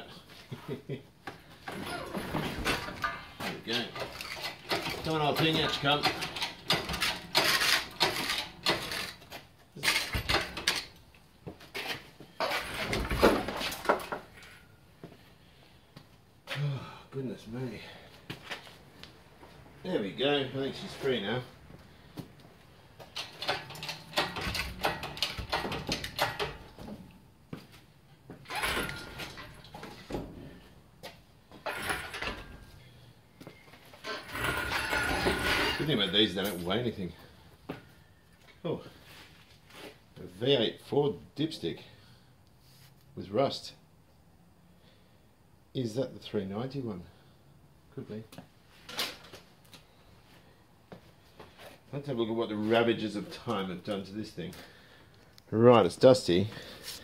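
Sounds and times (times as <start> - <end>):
metal chain clanking and rattling: 1.6 - 11.0, 12.3 - 14.7, 23.0 - 27.1, 28.4 - 30.7, 31.5 - 33.0, 34.0 - 36.7
metal scraping: 31.6 - 32.9, 34.0 - 36.6.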